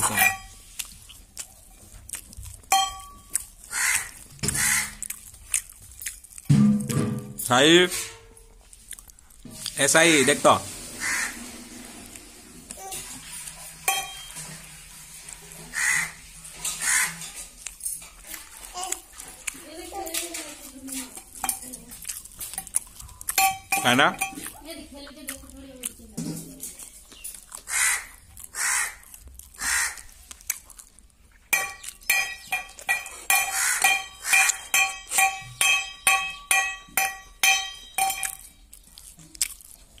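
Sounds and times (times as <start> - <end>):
metal plate clinking: 0.0 - 0.6, 2.7 - 3.4, 13.8 - 14.6, 23.3 - 24.6, 31.5 - 38.6
crow cawing: 3.7 - 5.0, 11.0 - 11.4, 15.7 - 16.2, 16.8 - 17.2, 27.7 - 29.0, 29.6 - 30.1, 33.5 - 34.5.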